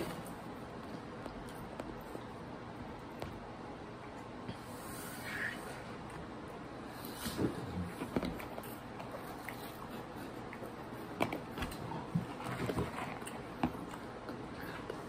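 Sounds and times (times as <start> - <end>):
crunchy chewing: 7.9 - 15.0.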